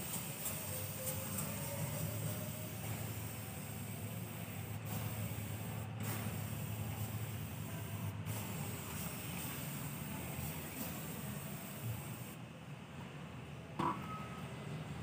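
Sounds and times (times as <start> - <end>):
spray bottle spraying: 0.0 - 12.4.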